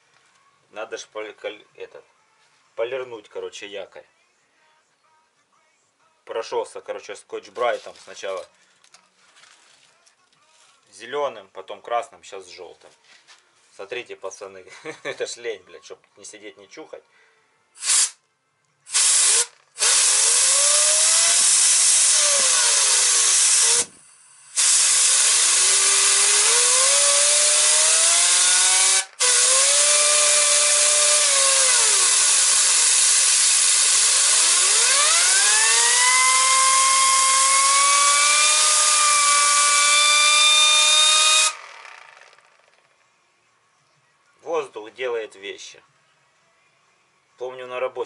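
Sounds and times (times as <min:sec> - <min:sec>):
air sander hissing and whining: 0:18.9 - 0:42.7.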